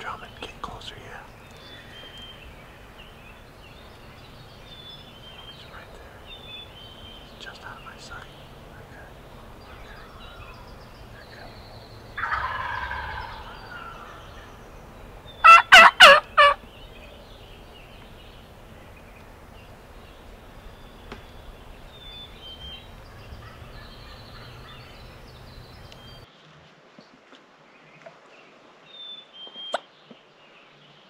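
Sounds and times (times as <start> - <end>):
turkey sharp calls: 0.0 - 26.3
turkey gobbling: 12.1 - 14.6, 15.4 - 16.7.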